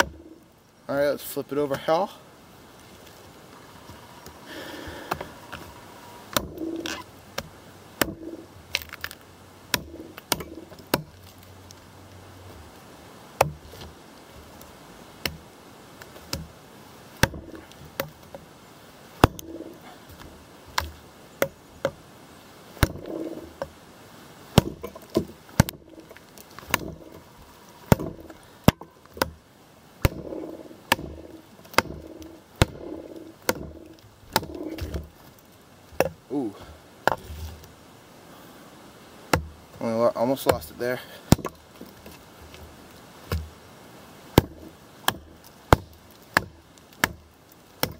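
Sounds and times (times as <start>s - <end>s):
machete chopping wood: 6.3s - 11.4s, 13.4s - 14.0s, 15.2s - 15.5s, 16.1s - 16.6s, 17.2s - 18.5s, 19.2s - 22.0s, 22.8s - 23.8s, 24.5s - 29.4s, 30.0s - 35.2s, 36.0s - 36.2s, 37.0s - 37.5s, 39.3s - 39.6s, 40.4s - 42.2s, 43.2s - 43.6s, 44.3s - 47.9s.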